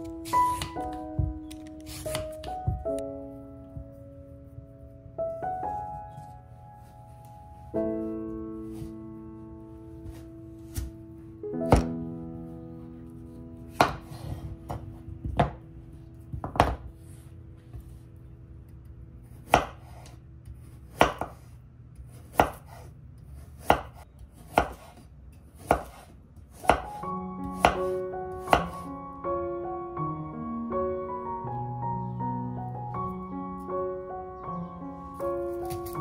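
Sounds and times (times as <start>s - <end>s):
piano melody: 0.0s - 21.1s, 26.5s - 36.0s
soft background music: 0.0s - 21.5s, 26.5s - 36.0s
knife chopping carrot on board: 13.7s - 15.6s, 19.4s - 20.2s, 20.9s - 22.9s, 23.6s - 25.0s, 25.6s - 28.9s, 35.7s - 36.0s.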